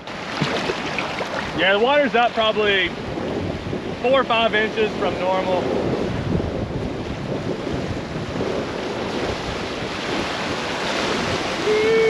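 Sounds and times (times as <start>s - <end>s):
creek water rushing: 0.0s - 2.9s, 9.7s - 12.0s
wind buffeting microphone: 0.0s - 12.0s.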